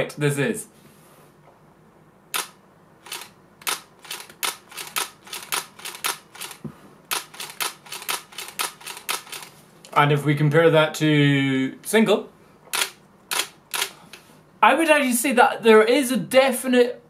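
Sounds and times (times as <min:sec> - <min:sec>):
camera shutter clicks: 0:02.4 - 0:09.5, 0:12.7 - 0:14.0.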